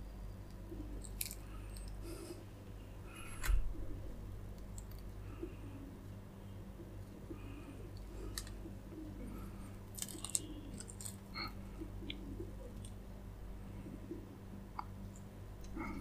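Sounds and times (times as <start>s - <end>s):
low steady hum: 0.0s - 16.0s
crisp crunches: 9.9s - 11.3s.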